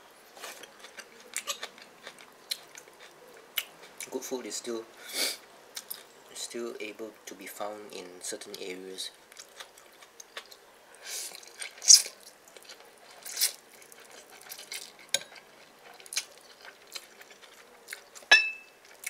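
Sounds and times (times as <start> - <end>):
chewing: 0.4 - 4.1, 5.7 - 6.2, 9.3 - 19.0
metal spoon clinking ceramic dish: 18.3 - 18.7
spoon clicking on plate: 18.3 - 18.7.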